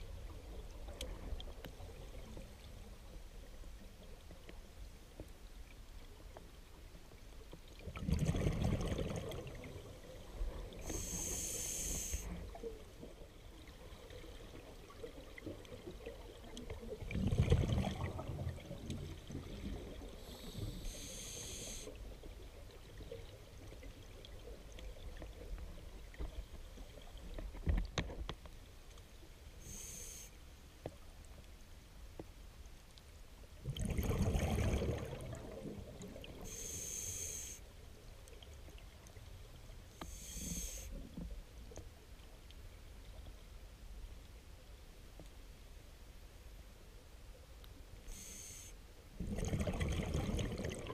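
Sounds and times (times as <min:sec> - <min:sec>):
hissing regulator inhalation: 0:10.9 - 0:12.4, 0:20.3 - 0:21.9, 0:29.6 - 0:30.4, 0:36.5 - 0:37.6, 0:40.0 - 0:40.9, 0:48.1 - 0:48.8
bubbling exhaust bubbles: 0:33.7 - 0:36.2, 0:49.2 - 0:50.9.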